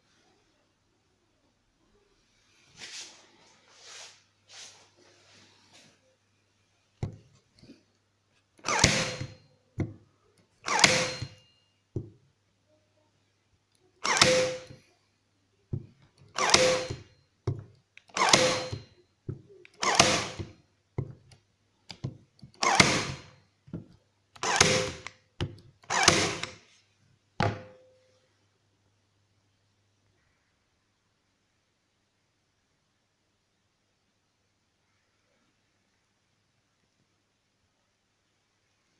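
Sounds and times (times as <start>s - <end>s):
electric stapler firing into wood: 8.6s - 9.4s, 10.7s - 11.4s, 14.0s - 14.8s, 16.3s - 17.1s, 18.1s - 18.8s, 19.7s - 20.6s, 22.6s - 23.3s, 24.4s - 26.6s.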